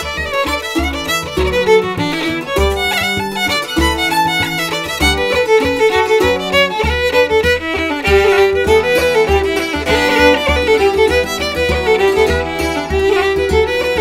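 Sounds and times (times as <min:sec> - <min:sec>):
bouzouki strumming chords: 0:00.0 - 0:14.0
fiddle playing a reel: 0:00.0 - 0:14.0.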